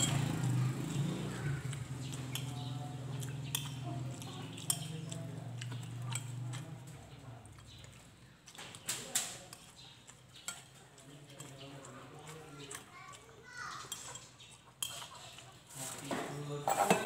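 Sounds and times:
cutlery clinking on ceramic plate: 4.5s - 6.8s, 10.4s - 11.6s, 13.9s - 15.2s, 16.6s - 17.0s.

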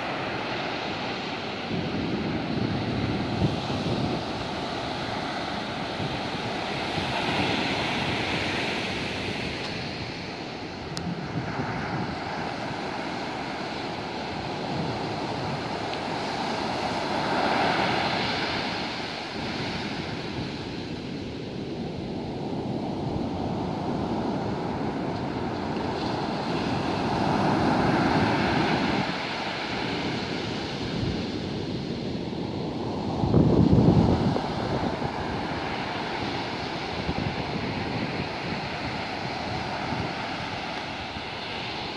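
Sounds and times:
big waves breaking: 0.0s - 41.9s
surf washing up beach: 0.0s - 41.9s.

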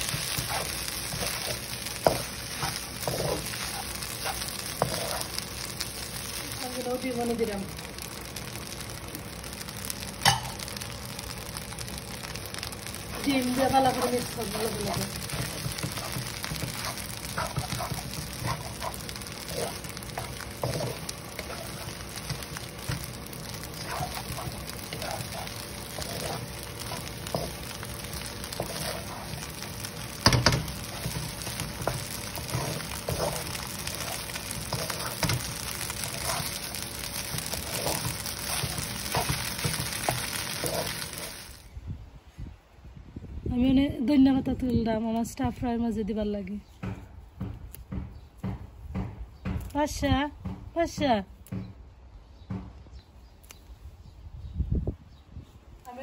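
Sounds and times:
wooden spatula scraping: 0.0s - 6.9s, 13.1s - 41.6s
food sizzling in a wok: 0.0s - 41.8s.

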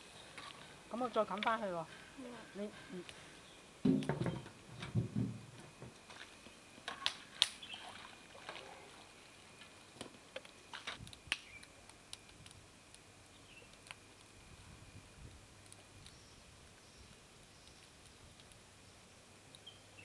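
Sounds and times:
low knocks: 3.8s - 5.9s.

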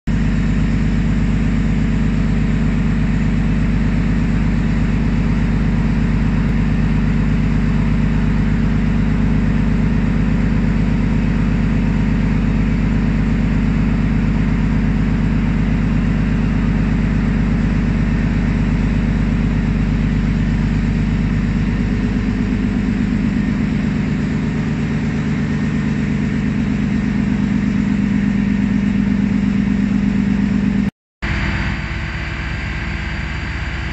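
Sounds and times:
heavy machinery droning: 0.2s - 33.9s.

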